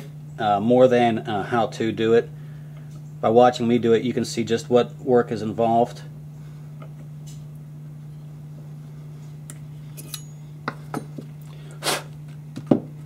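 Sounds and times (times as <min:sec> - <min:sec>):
metal tools clinking: 0:09.9 - 0:11.2.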